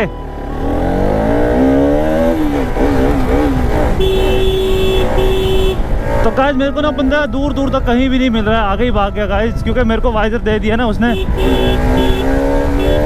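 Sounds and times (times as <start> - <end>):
motorcycle engine revving: 0.0 - 7.2, 11.1 - 13.0.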